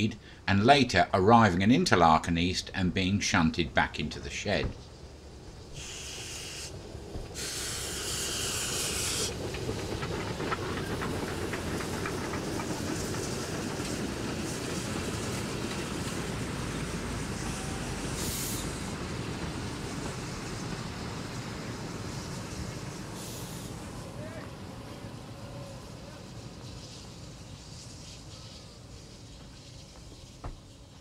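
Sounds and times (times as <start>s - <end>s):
train coaches rumbling past: 0.0s - 31.0s
steam hissing: 4.2s - 31.0s
wheels clicking over rail joints: 7.0s - 16.3s.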